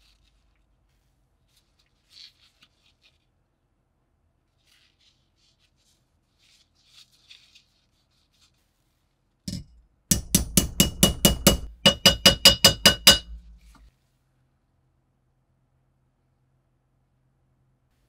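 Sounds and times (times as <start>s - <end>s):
hammer striking metal plate: 9.5s - 13.8s.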